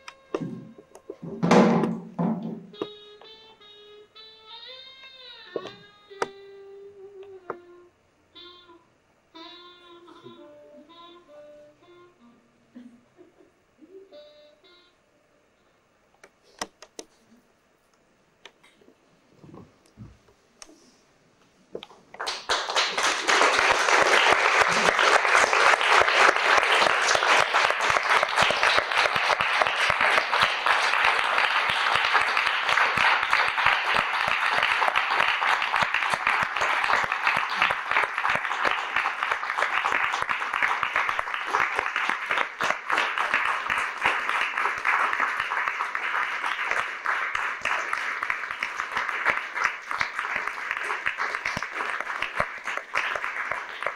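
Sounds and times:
audience applauding: 22.1 - 53.9.

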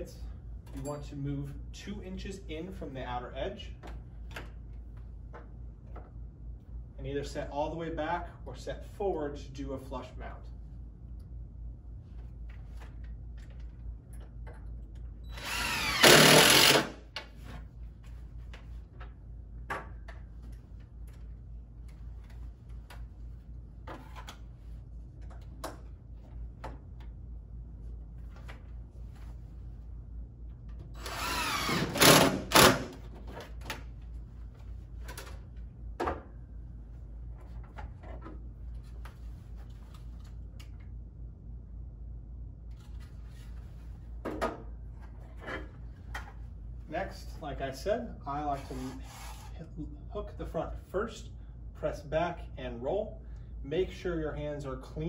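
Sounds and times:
cordless drill driving screws: 15.3 - 17.0, 31.0 - 33.0.

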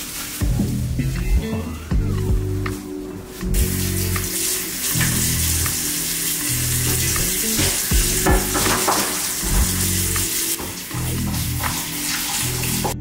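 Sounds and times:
brush scrubbing under water: 6.8 - 13.0
tap running into basin: 7.1 - 13.0.

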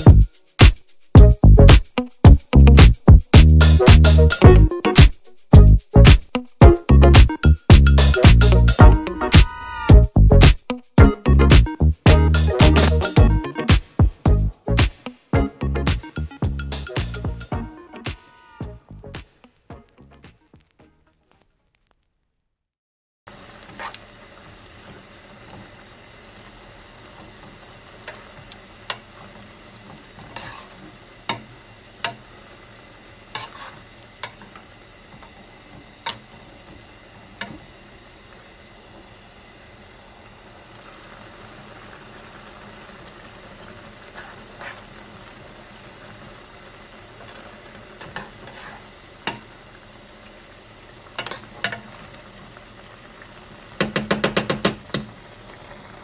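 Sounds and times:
bubbling broth hissing: 23.3 - 56.0.

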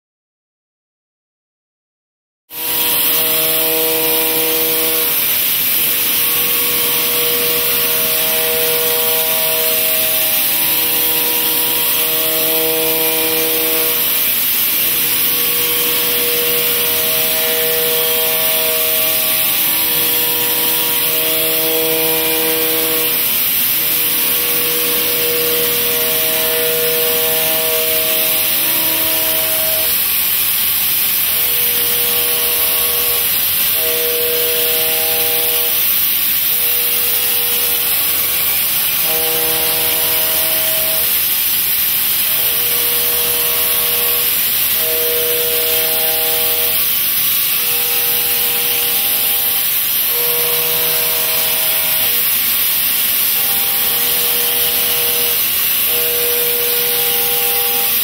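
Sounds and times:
whining tones: 2.6 - 35.9, 36.7 - 41.6
milling cutter hissing: 2.6 - 58.0.

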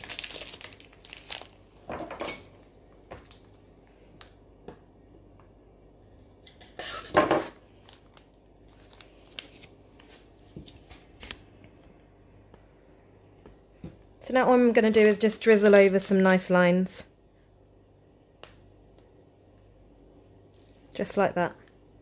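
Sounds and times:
plastic piping bag squeezed: 0.0 - 1.6.

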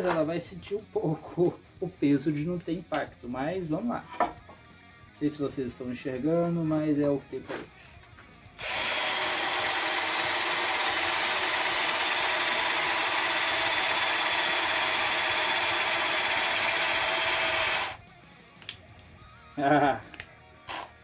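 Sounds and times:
cordless drill boring into tile: 8.6 - 18.0.

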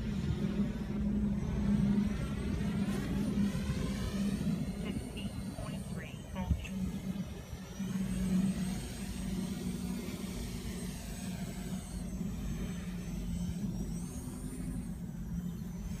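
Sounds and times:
drone propellers buzzing: 0.0 - 16.0
high motor whine: 0.0 - 16.0.

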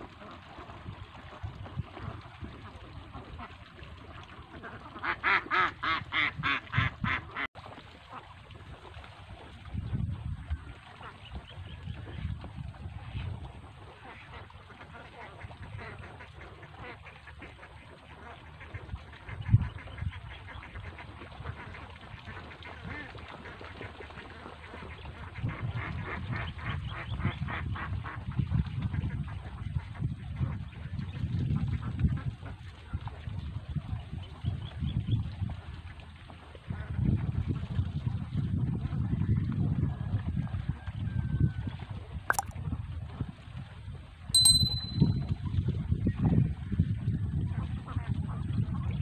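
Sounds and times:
ducks quacking: 4.5 - 7.5.

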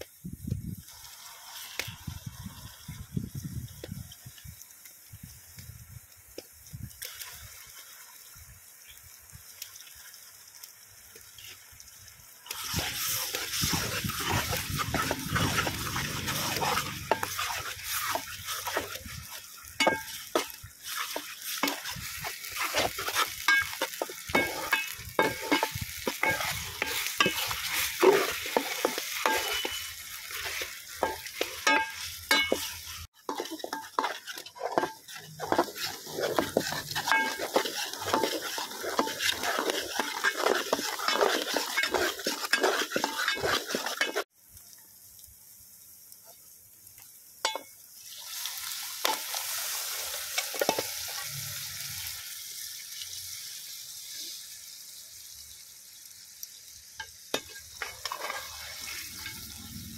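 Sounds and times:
onions sizzling in a pot: 0.0 - 59.9
metal ladle scraping a pot: 12.5 - 44.2, 57.4 - 59.7.

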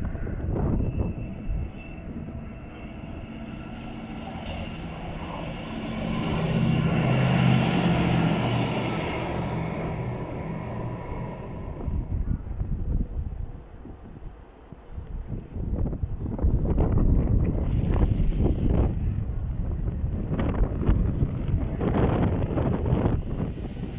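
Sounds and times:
rail machine diesel engine passing: 0.0 - 23.9
wind buffeting microphone: 0.0 - 23.9.

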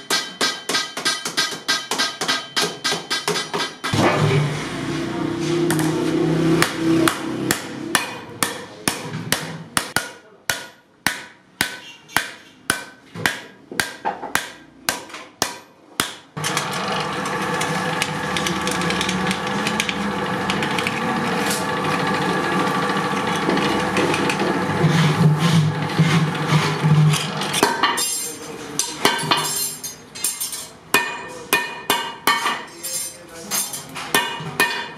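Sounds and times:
hammer striking metal disc: 0.0 - 4.0, 6.6 - 16.3, 27.6 - 34.9
rolling machine running: 16.4 - 27.6.

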